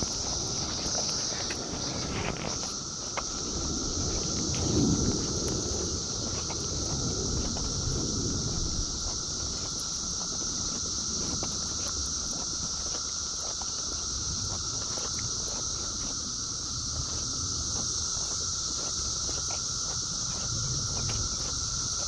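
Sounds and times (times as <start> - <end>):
cicadas droning: 0.0 - 22.0.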